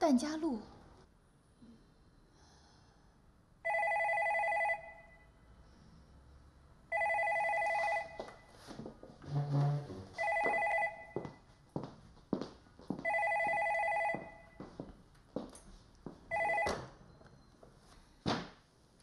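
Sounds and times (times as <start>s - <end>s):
telephone ringing: 3.6s - 5.3s, 6.9s - 8.5s, 10.2s - 11.3s, 13.0s - 14.6s, 16.3s - 17.0s
chair scrape: 7.6s - 10.4s
footsteps: 7.6s - 16.3s.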